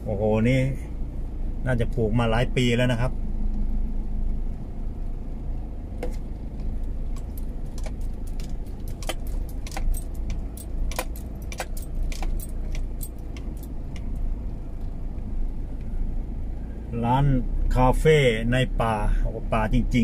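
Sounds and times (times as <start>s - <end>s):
car engine and tyres rumbling: 0.0s - 20.0s
rattles and clicks in car: 5.0s - 16.6s.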